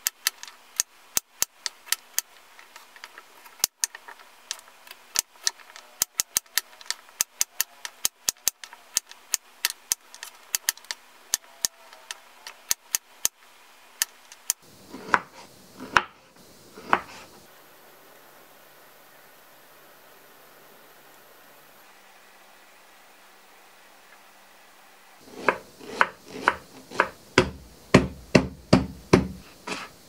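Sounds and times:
knife chopping on a wooden board: 14.9s - 16.2s, 16.8s - 17.1s, 25.3s - 29.9s
dull knocks: 25.4s - 29.4s.

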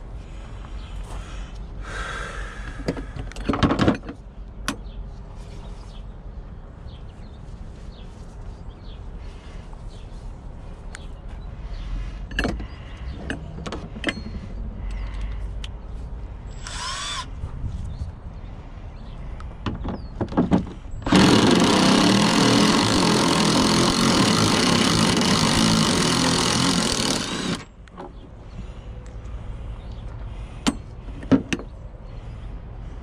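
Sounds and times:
parts being handled clicking: 12.3s - 15.8s
cordless drill running: 16.5s - 17.3s, 21.0s - 27.7s.

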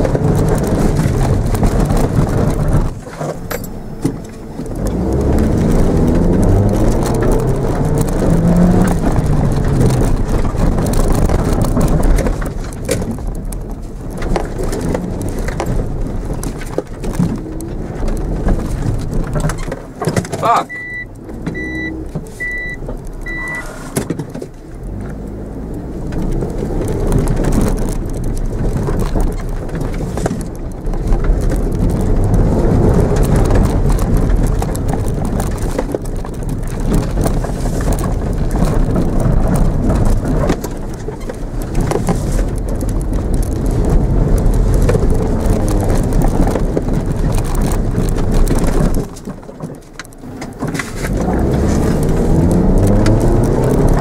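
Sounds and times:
car engine revving: 0.0s - 19.6s, 20.2s - 49.1s, 50.1s - 54.0s
car rumbling over rough ground: 0.0s - 54.0s
short high beeps: 20.7s - 23.8s.

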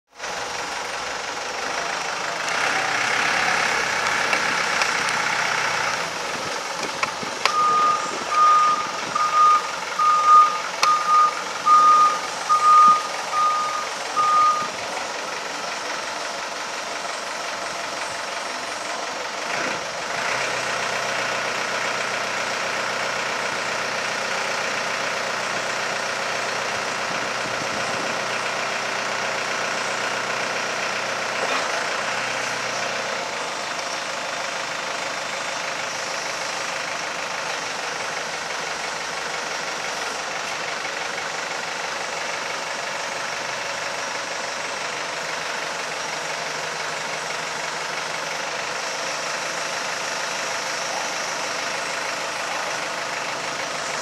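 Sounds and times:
forklift engine running: 0.1s - 54.0s
reversing alarm beeping: 7.4s - 14.8s.

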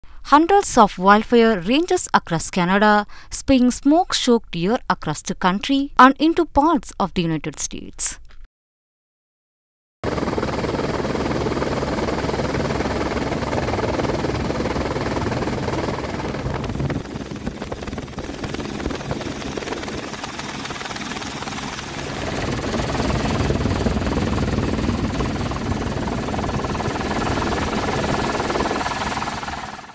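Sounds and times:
helicopter rotor chop: 10.0s - 29.9s.

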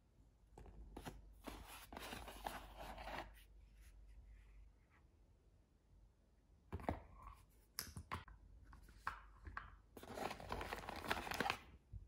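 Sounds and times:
packaging rustling: 10.0s - 11.7s.

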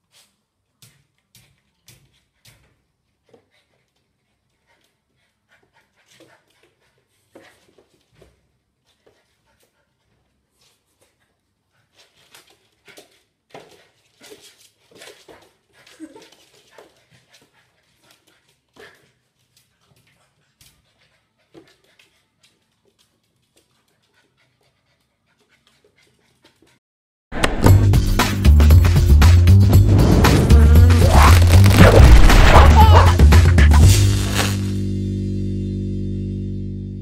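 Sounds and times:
puppy panting: 1.4s - 8.1s, 8.8s - 26.8s
loud music: 27.7s - 34.8s.

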